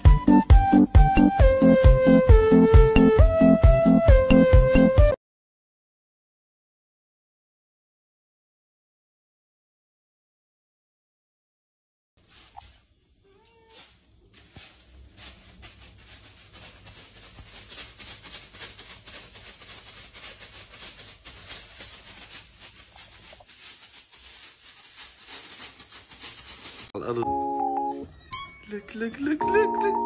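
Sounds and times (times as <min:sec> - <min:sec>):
plastic bag crinkling: 0:12.2 - 0:27.0.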